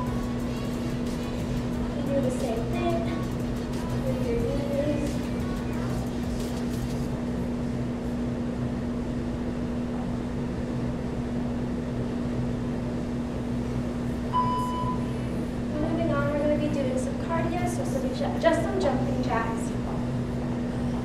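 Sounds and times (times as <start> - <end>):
low room hum: 0.0 - 21.0
short high electronic beep: 14.3 - 15.1.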